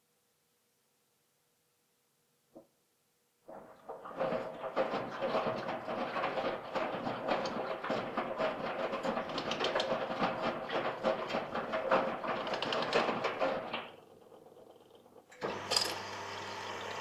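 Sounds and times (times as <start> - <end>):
drum rattling and clicking: 3.5 - 15.8
washing machine motor hum: 3.5 - 17.0.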